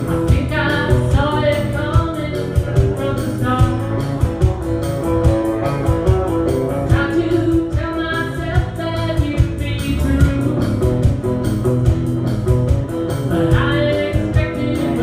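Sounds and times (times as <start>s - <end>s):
woman singing: 0.0s - 4.3s, 6.9s - 11.2s, 13.2s - 15.0s
small live band playing: 0.0s - 15.0s.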